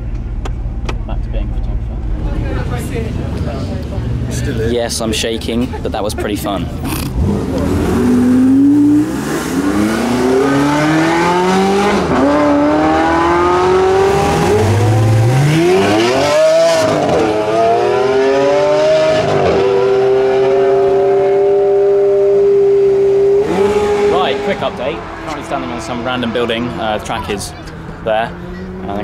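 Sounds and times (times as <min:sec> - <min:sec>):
sports car engines accelerating: 0:00.0 - 0:29.0
sports car engine pulling away: 0:06.7 - 0:26.8.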